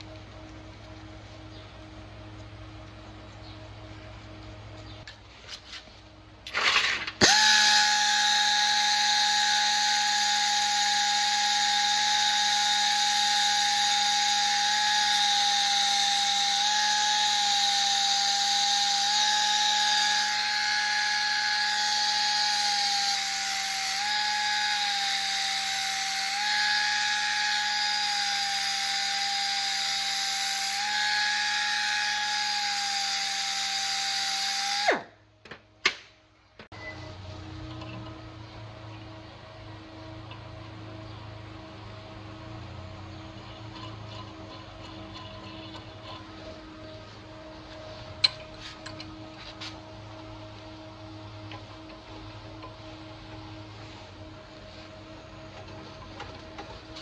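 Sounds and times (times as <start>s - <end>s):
belt sander whining: 6.5s - 35.1s, 36.6s - 57.0s.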